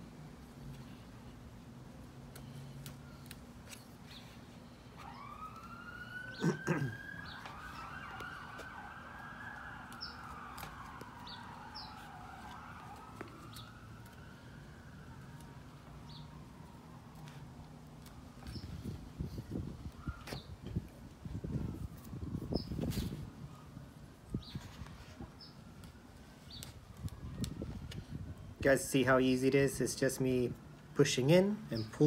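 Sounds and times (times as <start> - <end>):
distant emergency siren wailing: 4.1 - 29.5.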